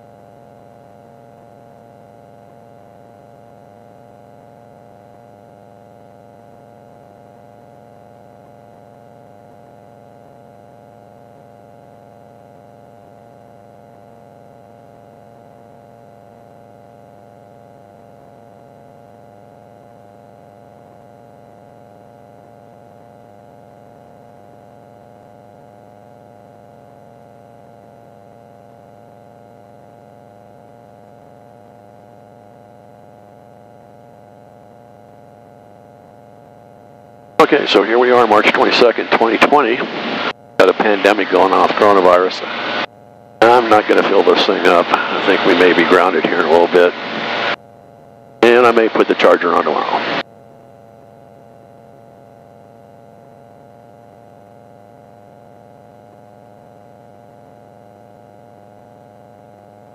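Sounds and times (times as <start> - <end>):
light airplane engine drone: 0.0 - 58.8.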